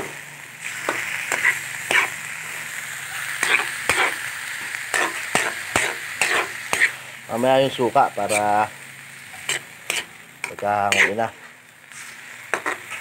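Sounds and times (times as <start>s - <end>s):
food sizzling in wok: 0.0s - 13.0s
metal spatula scraping wok: 0.7s - 2.6s, 3.2s - 7.1s, 8.1s - 8.7s, 9.3s - 13.0s.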